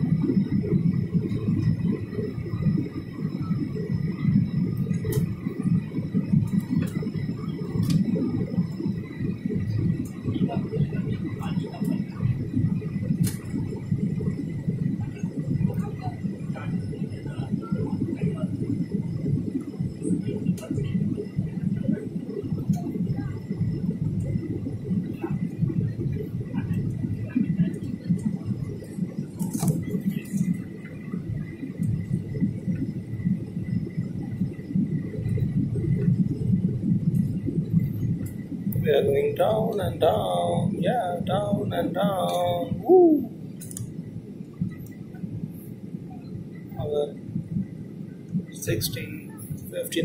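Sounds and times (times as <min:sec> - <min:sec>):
faint high whine: 0:00.0 - 0:50.0
jet engines rumbling in cabin: 0:00.0 - 0:50.0
rushing air in cabin: 0:00.0 - 0:50.0.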